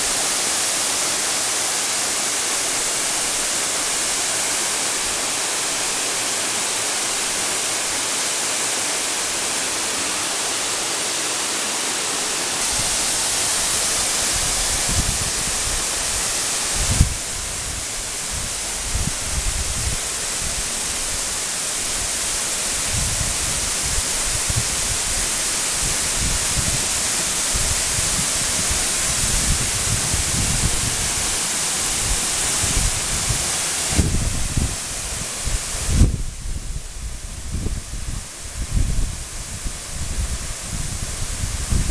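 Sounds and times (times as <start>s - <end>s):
waterfall rushing: 0.0s - 41.9s.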